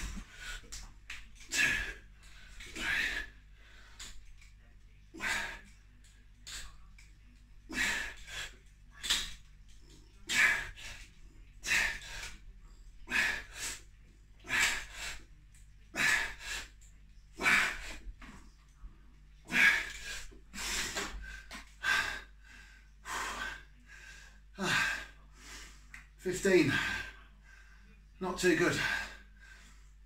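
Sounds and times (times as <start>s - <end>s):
man breathing heavily under strain: 0.0s - 4.5s, 19.5s - 25.9s.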